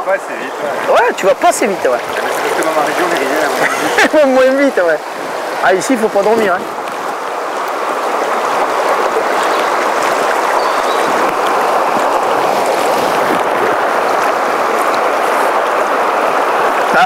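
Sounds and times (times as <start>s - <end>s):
river rushing over rocks: 0.0s - 17.0s.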